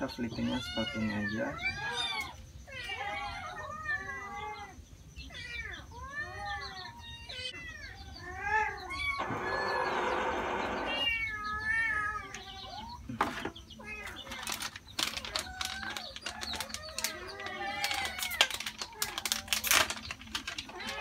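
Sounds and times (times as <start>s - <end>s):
cats meowing: 0.0s - 21.0s
rough noisy sound: 9.2s - 11.2s
plastic packets crinkling: 14.2s - 21.0s.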